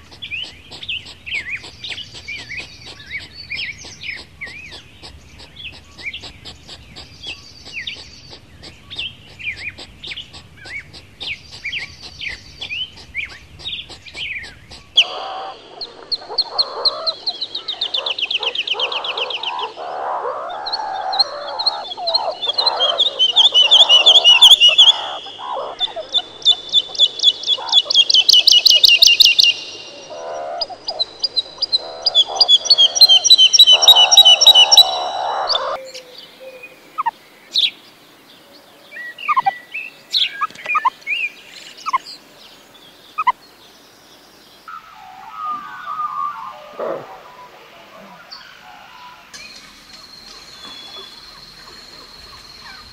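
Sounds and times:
meerkats chattering: 0.0 - 35.8, 39.3 - 39.5, 48.8 - 52.9
meerkats trilling: 0.0 - 35.9, 44.8 - 52.9
quick high chirps: 49.3 - 52.9.

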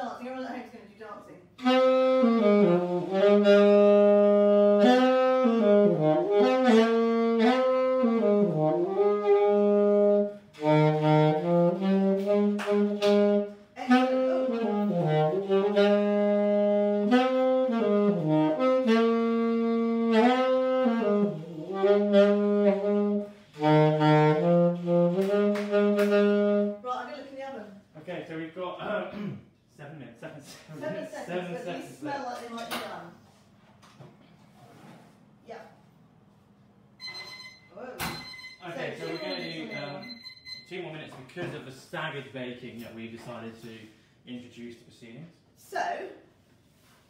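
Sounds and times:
saxophone solo melody: 1.6 - 26.8.

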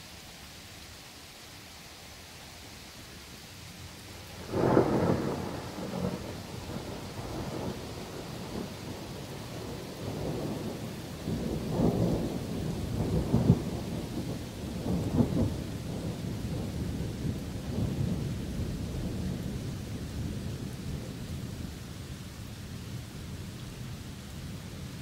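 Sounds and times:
steady rain: 0.0 - 25.0
rolling thunder: 4.4 - 21.1.

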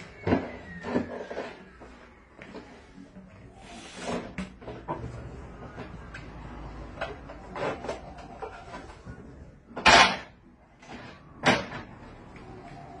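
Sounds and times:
balloons rubbing and scraping: 0.7 - 5.6.

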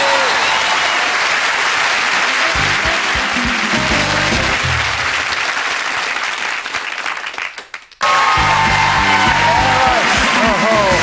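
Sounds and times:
audience applauding: 0.0 - 11.0
song accompaniment: 2.2 - 5.2, 8.2 - 11.0
theme music with steady beat: 2.4 - 5.0.

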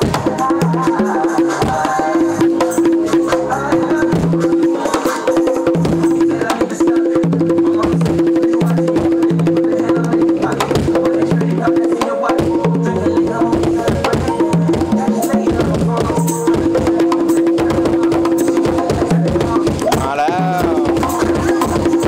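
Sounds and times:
conga drums played by hand: 0.0 - 22.0.

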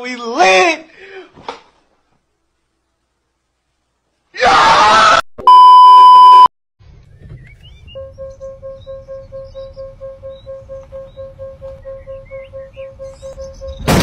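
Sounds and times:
strained scream-like cry: 4.4 - 5.2
high beep tone: 5.4 - 6.5, 8.0 - 14.0.

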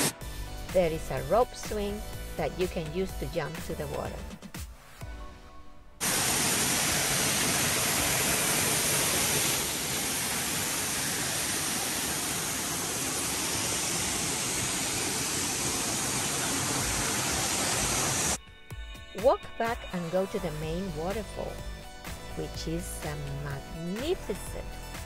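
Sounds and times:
waterfall pouring into pool: 6.0 - 18.4.

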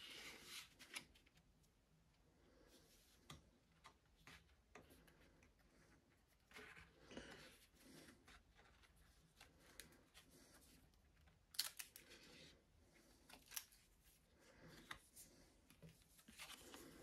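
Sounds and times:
paper and card rustling: 13.1 - 17.0.

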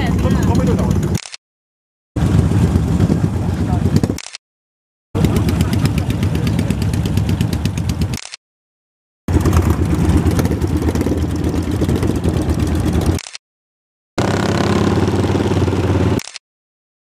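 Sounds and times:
motorcycles idling: 0.0 - 1.2, 2.2 - 4.2, 5.2 - 8.2, 9.3 - 13.2.

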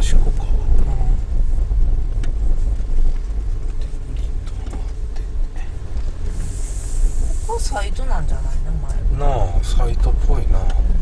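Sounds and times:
car rumbling over dirt: 0.0 - 11.0
brief hiss: 6.3 - 7.8.

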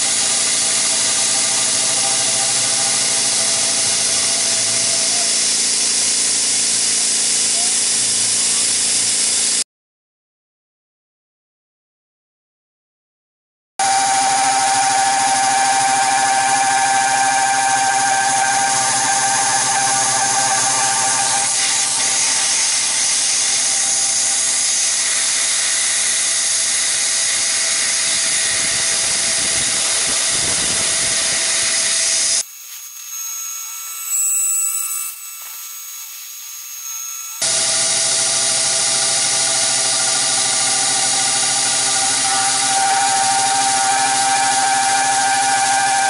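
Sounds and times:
milling machine cutting metal: 0.0 - 9.6, 13.8 - 46.0
thin machine whine: 0.0 - 9.6, 13.8 - 46.0
high steady tone: 13.8 - 25.7, 28.1 - 46.0.

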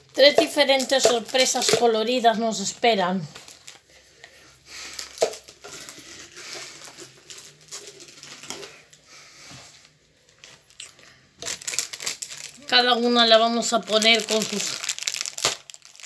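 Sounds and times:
plastic packaging crinkling: 0.0 - 2.6, 3.3 - 4.0, 4.7 - 9.0, 10.2 - 16.0.

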